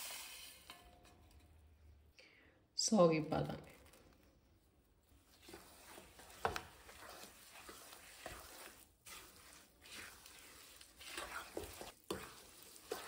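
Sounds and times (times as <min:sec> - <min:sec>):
spatula scraping a steel pan: 0:05.4 - 0:13.0.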